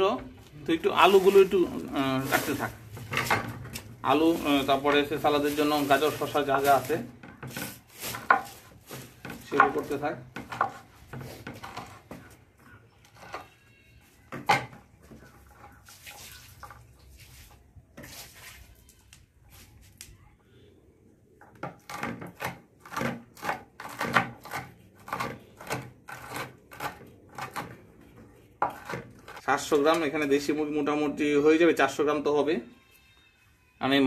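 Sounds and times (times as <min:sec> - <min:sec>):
knife chopping on wooden board: 0:21.6 - 0:27.8.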